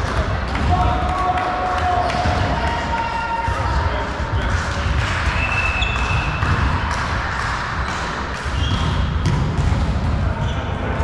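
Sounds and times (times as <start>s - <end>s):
sports hall low rumble: 0.0s - 11.0s
ball bouncing: 4.4s - 10.5s
shoes squeaking on court floor: 7.8s - 9.1s.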